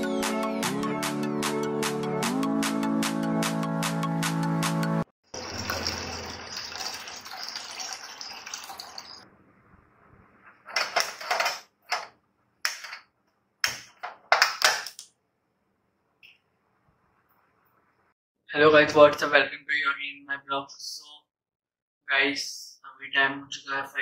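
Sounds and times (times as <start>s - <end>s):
tap water running into pot: 5.4s - 9.2s.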